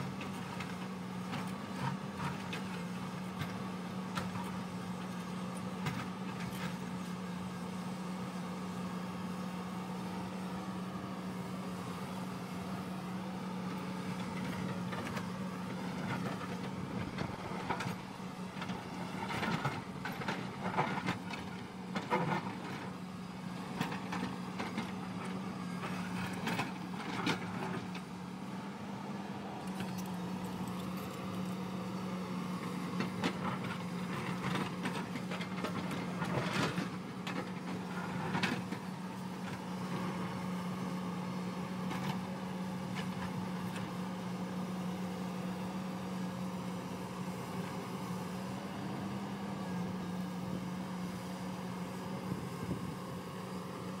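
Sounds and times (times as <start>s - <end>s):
excavator diesel engine humming: 0.0s - 54.0s.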